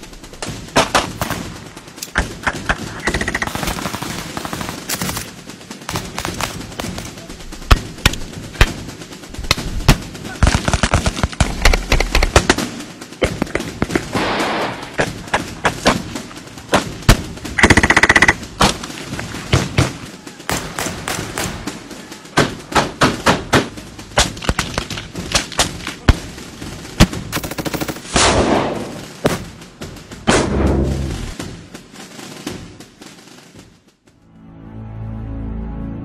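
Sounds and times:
machine gun bursts: 17.6 - 18.5.

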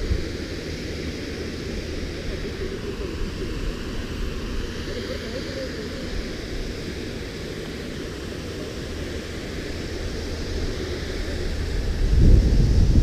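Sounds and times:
wind buffeting microphone: 8.9 - 13.0.

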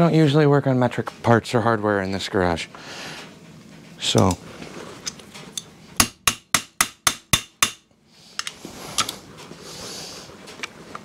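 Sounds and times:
hammer striking metal: 6.0 - 7.9.

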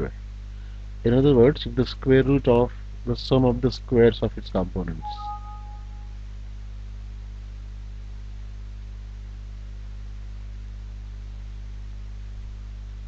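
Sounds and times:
constant hiss: 0.0 - 6.1
low electrical hum: 0.0 - 13.0.

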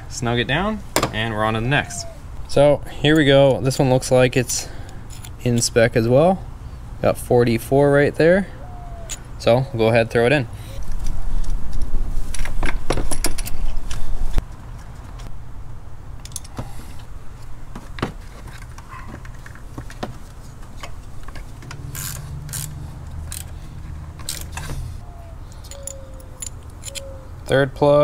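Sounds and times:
ratchet clicking: 21.8 - 23.6
metal hand tools clinking: 25.5 - 27.2.

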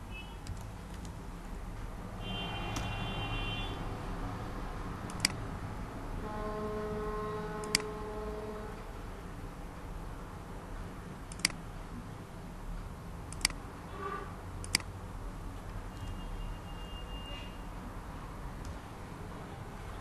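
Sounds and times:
computer mouse clicks: 0.4 - 1.2, 5.1 - 5.4, 7.6 - 7.9, 11.3 - 11.6, 13.3 - 13.6, 14.6 - 14.9.

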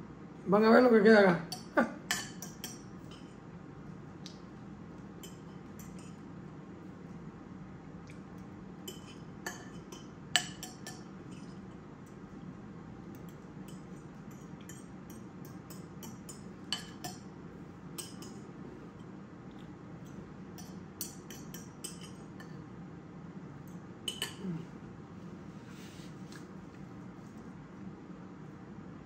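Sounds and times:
fork clinking on ceramic plate: 1.5 - 3.3, 13.7 - 17.3, 18.0 - 18.4, 20.6 - 22.6.

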